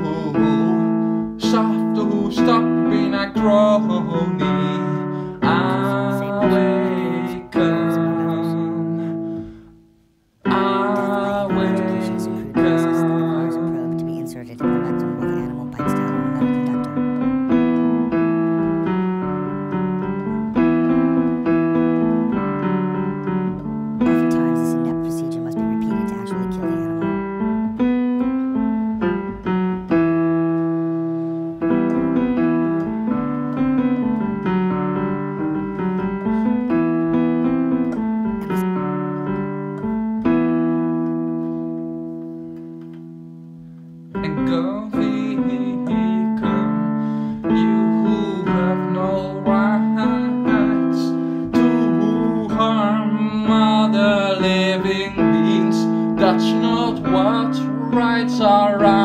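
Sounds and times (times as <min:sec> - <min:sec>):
piano music: 0:00.0 - 0:59.0.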